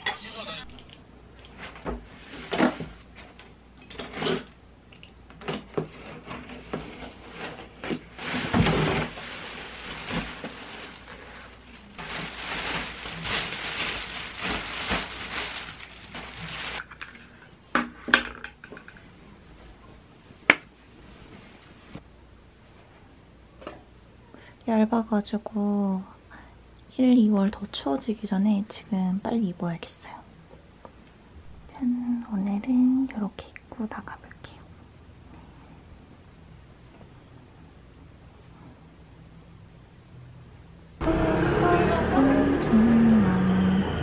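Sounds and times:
packaging rustling: 7.3 - 16.9.

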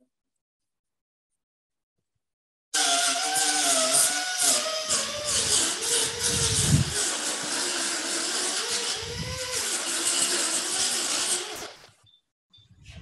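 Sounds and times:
rotary grinder whining on plastic: 2.8 - 11.9
heavy rumbling grinding contact: 5.3 - 7.0.

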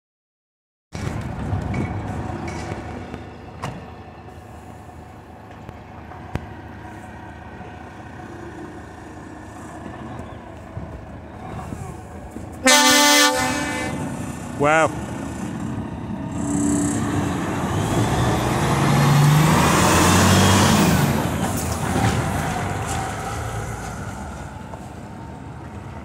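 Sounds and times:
truck diesel engine at low revs: 1.0 - 26.0
multi-note air horn blast: 12.6 - 14.1.

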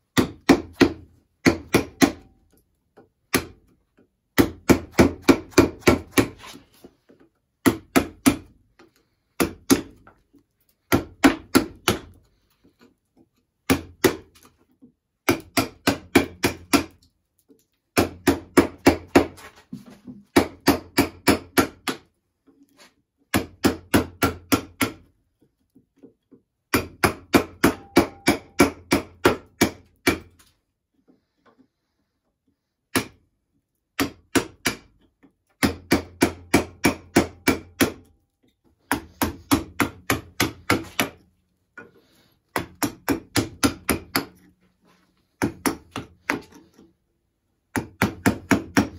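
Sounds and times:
mallet striking chisel: 0.1 - 2.3, 3.3 - 3.7, 4.4 - 6.6, 7.6 - 8.5, 9.4 - 10.1, 10.9 - 12.2, 13.6 - 14.4, 15.2 - 17.0, 26.7 - 30.3, 35.6 - 38.1, 38.9 - 41.2, 42.5 - 44.5, 45.4 - 46.8, 47.7 - 48.9.

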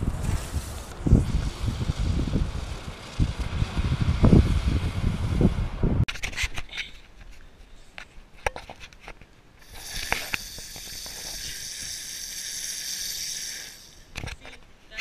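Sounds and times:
firework fountain hissing: 0.0 - 5.1, 9.6 - 14.1.

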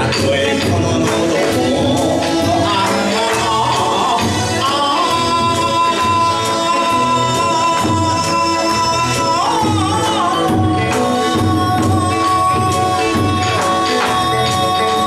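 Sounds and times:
live accompaniment with steady beat: 0.0 - 15.0
man singing long notes: 0.0 - 15.0.

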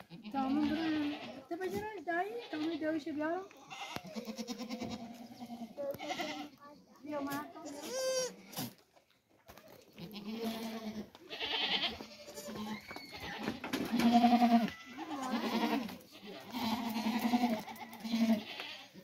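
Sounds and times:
goats bleating: 0.0 - 6.6, 7.2 - 8.4, 9.9 - 19.0.

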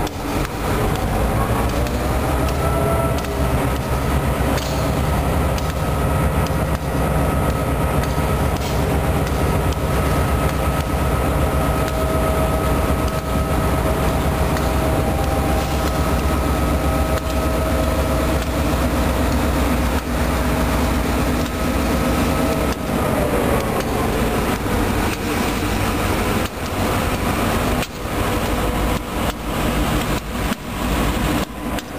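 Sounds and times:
clicks over rail joints: 0.0 - 11.0
steel wheels rumbling on rail: 0.0 - 31.9.

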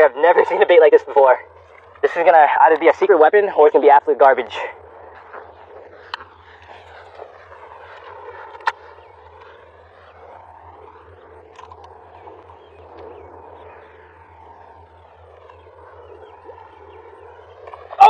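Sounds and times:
low hum: 0.0 - 18.0
motorized buzz of fishing lure: 4.8 - 18.0.

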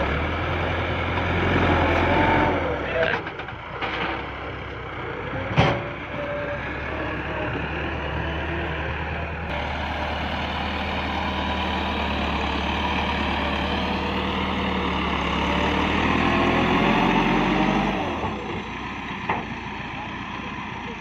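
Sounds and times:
tractor diesel engine under load: 0.0 - 21.0.

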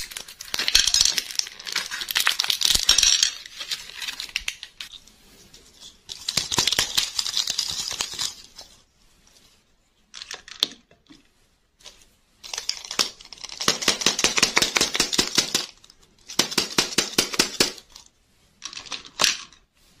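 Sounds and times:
plastic candy wrappers crinkling: 0.0 - 5.0, 5.8 - 8.8, 12.4 - 16.6.

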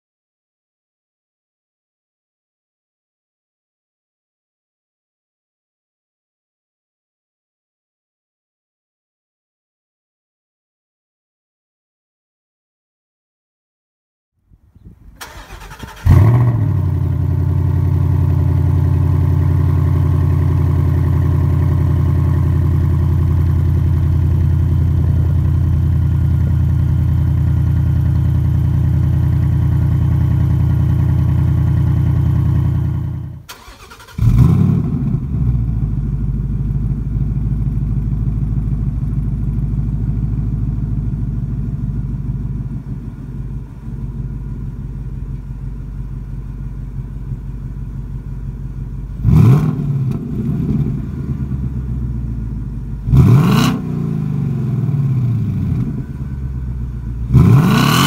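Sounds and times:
car engine starting and idling: 14.9 - 58.0
engine cranking: 15.2 - 16.5, 33.5 - 34.5.

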